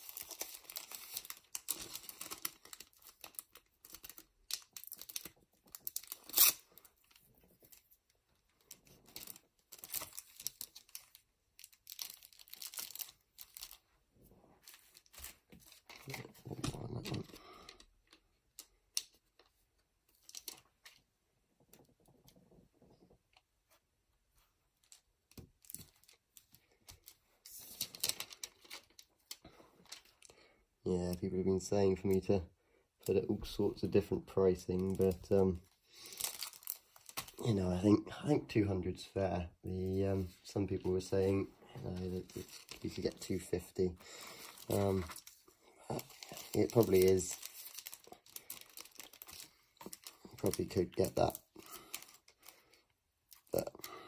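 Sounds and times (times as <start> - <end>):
plastic and foil crinkling: 0.0 - 14.0, 14.6 - 21.0, 24.4 - 32.3, 33.0 - 37.9, 39.8 - 54.0
adhesive strip peeling: 6.0 - 6.6.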